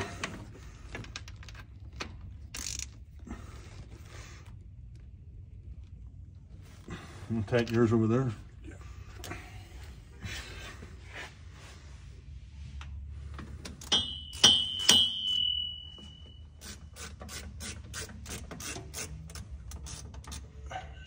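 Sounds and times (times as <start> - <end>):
sharp metal clinks: 13.8 - 16.4.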